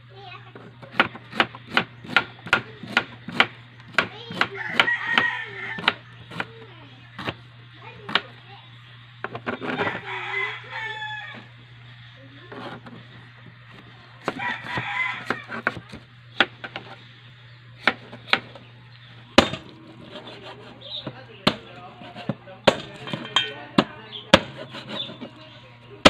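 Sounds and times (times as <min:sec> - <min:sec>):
rooster crowing: 0:04.5 - 0:06.1, 0:09.6 - 0:11.6, 0:14.2 - 0:15.9
knife on plastic cutting board: 0:12.5 - 0:13.0, 0:20.0 - 0:21.2, 0:21.9 - 0:22.4, 0:24.4 - 0:25.3.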